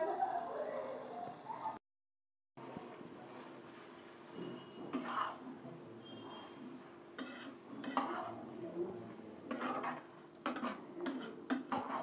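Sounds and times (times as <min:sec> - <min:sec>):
metal spoon scraping a pan: 0:04.4 - 0:08.5, 0:09.5 - 0:12.0.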